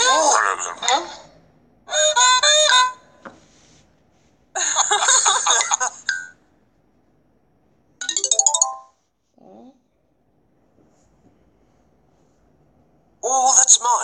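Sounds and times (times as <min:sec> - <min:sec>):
rising chime notes: 0:08.0 - 0:08.9.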